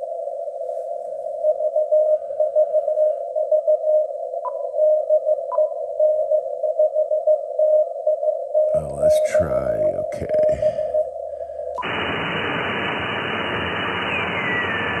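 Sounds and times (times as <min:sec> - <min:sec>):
radio filter hiss: 0:08.7 - 0:15.0.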